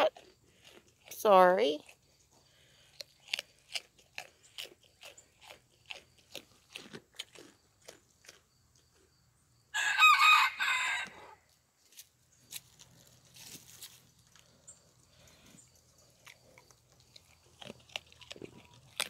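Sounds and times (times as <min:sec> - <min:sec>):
goat crunching carrots: 0:00.0 - 0:09.6, 0:11.8 - 0:19.0
rooster crowing: 0:09.7 - 0:11.4.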